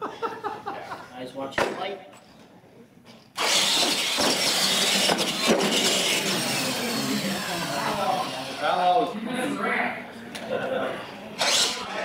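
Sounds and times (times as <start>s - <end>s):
tires rushing over hard floor: 3.4s - 8.0s
electric motors whining: 3.4s - 9.0s, 11.4s - 12.0s.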